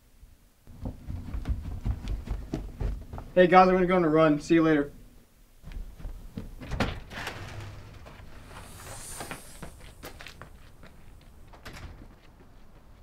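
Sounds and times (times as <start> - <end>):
footsteps: 0.7 - 3.4, 5.6 - 13.0
door opening and closing: 6.6 - 10.3, 11.4 - 12.1.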